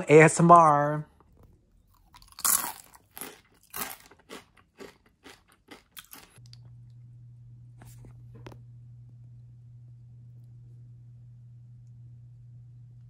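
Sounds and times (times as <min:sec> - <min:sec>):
chewing crunchy chip: 0:01.3 - 0:06.7.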